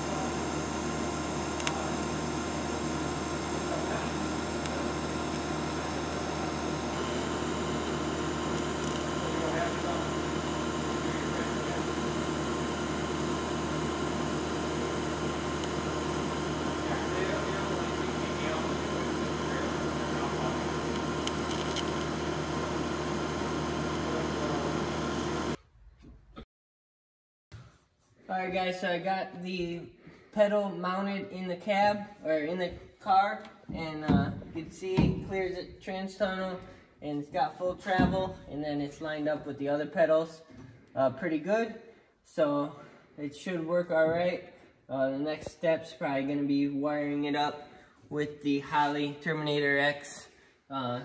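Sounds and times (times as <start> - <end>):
welding arc hissing: 0.0 - 25.6.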